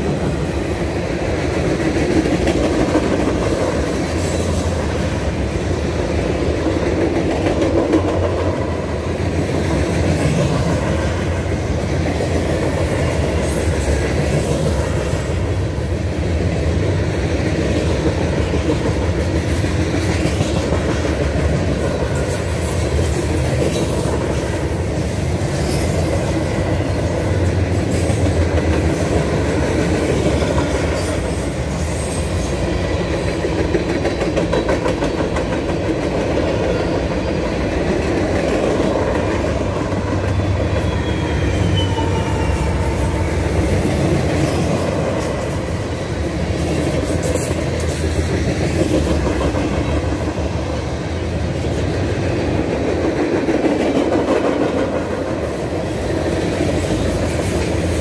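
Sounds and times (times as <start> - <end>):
freight train rumbling past: 0.0 - 58.0
wheels clacking over rail joints: 32.6 - 45.8
faint wheel squeal: 40.8 - 43.2.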